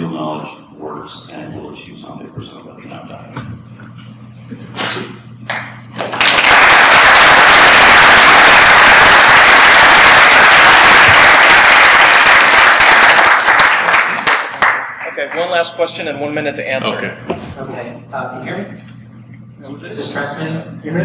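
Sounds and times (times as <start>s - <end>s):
audience applause: 6.0s - 15.6s.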